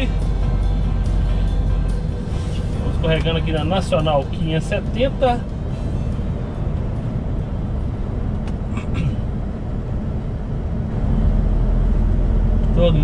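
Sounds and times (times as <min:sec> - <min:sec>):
lorry engine and road rumble: 0:00.0 - 0:13.0.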